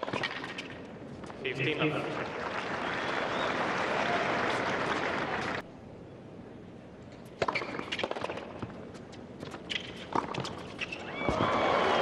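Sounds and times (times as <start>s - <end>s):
tennis shoes squeaking: 0.0s - 1.4s, 7.2s - 11.6s
tennis ball bounces: 7.4s - 8.8s.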